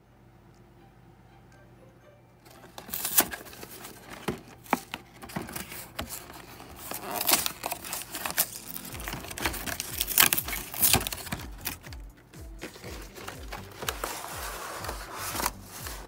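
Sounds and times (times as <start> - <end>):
cardboard tearing: 2.5 - 11.9, 12.6 - 16.0
plastic film crinkling: 2.5 - 16.0.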